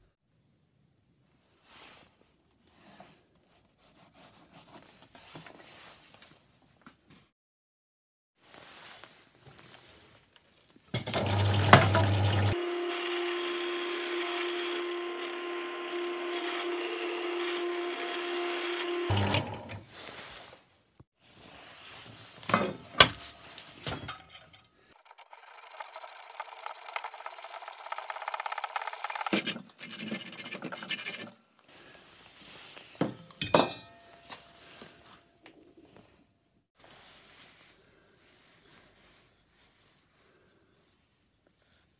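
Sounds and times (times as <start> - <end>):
power tool humming: 11.2 - 19.8, 25.0 - 29.6
high hissing cut into steel: 25.0 - 30.3.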